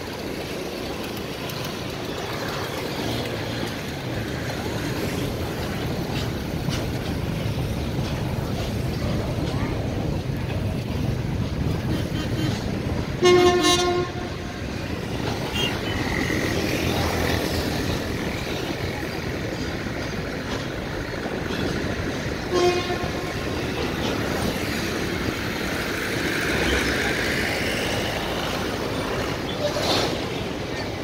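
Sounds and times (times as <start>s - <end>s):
freight train rumble and wheel clatter: 0.0s - 31.0s
locomotive horn toot: 11.9s - 14.7s, 15.4s - 16.0s, 22.4s - 23.6s.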